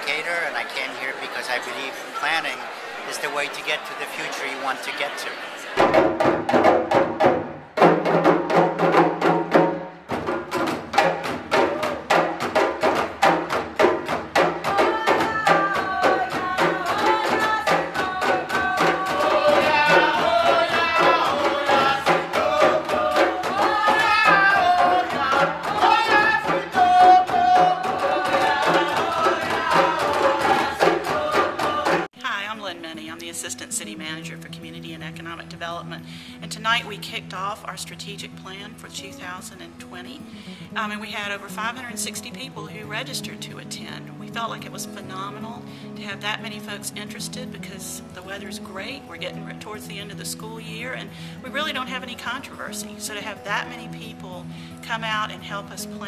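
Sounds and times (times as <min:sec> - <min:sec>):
hand drums playing fast rhythm: 0:05.8 - 0:32.1.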